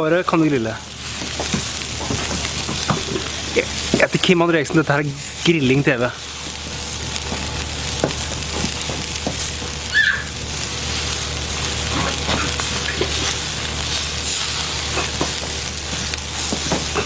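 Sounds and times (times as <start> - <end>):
food sizzling on a grill: 0.0 - 17.0.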